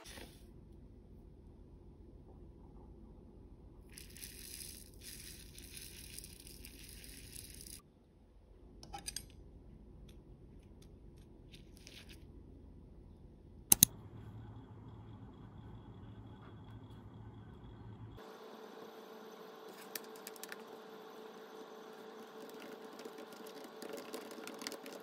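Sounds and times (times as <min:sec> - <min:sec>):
sugar sprinkling hiss: 0:04.0 - 0:07.8
sharp clicks: 0:13.7 - 0:13.9.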